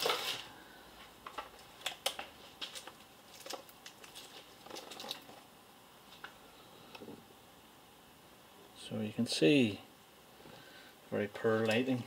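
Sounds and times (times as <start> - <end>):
rustling: 0.0 - 6.4.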